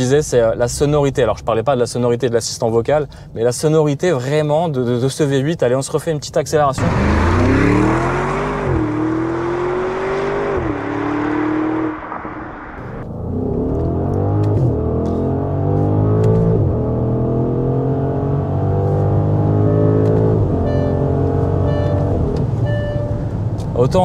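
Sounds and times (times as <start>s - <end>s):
car engine accelerating hard: 6.8s - 22.6s.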